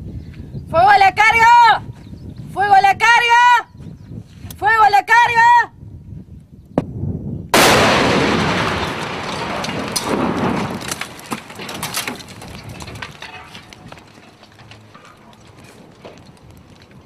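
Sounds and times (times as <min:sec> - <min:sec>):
explosion blast: 0:07.6 - 0:11.8
sharp cracks: 0:07.6 - 0:17.0.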